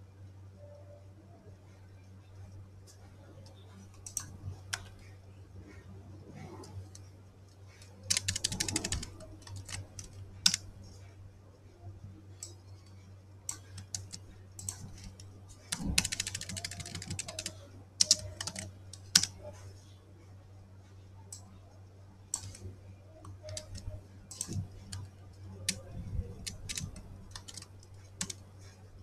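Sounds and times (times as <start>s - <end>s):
typing on computer keyboard: 4.0s - 5.0s, 7.8s - 10.6s, 13.5s - 19.4s, 22.3s - 22.6s, 23.2s - 28.4s.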